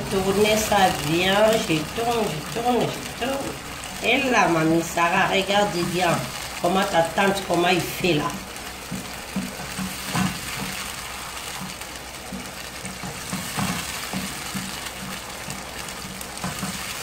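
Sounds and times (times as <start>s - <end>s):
sauce sizzling in a frying pan: 0.0s - 17.0s
wooden spoon scraping a pan: 8.6s - 17.0s.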